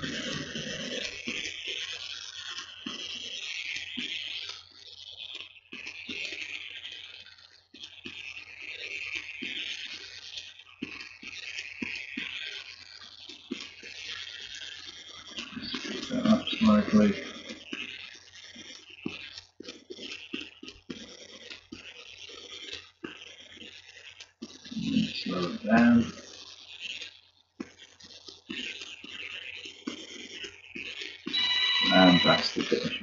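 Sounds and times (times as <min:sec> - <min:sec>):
soft clicks and scratches: 0:00.0 - 0:33.0
steady hiss: 0:15.3 - 0:17.4, 0:24.7 - 0:26.2.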